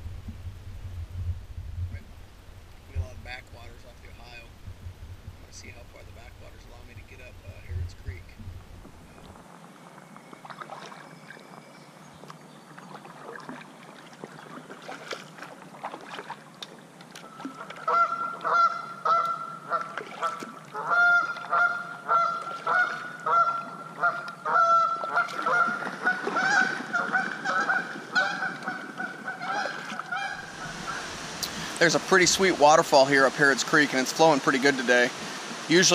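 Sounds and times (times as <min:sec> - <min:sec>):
kayak paddle in water: 0:00.0 - 0:35.9
geese honking: 0:17.2 - 0:32.5.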